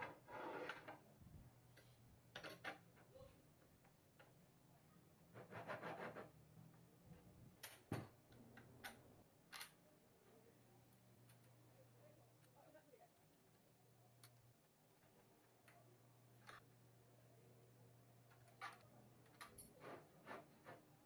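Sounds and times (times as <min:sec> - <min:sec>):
small parts and tools clicking: 0:07.6 - 0:09.8, 0:14.2 - 0:15.8, 0:18.3 - 0:19.8.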